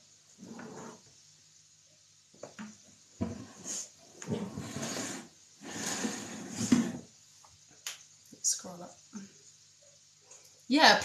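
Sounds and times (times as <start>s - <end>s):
plastic scraping on wooden table: 0.4s - 1.0s, 3.2s - 7.1s.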